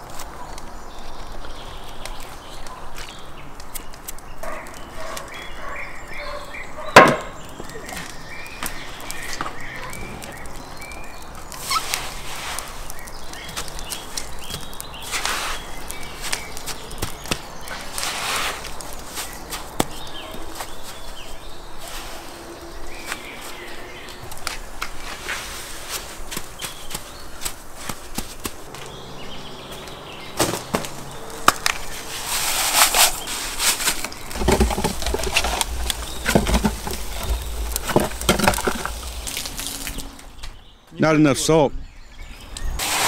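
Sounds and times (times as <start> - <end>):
coarse salt crunching and swishing: 8.8 - 19.8, 31.8 - 40.3, 42.8 - 43.0.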